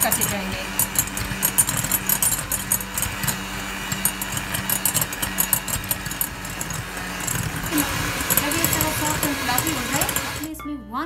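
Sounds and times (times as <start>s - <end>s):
hand mixer motor hum: 0.0s - 10.5s.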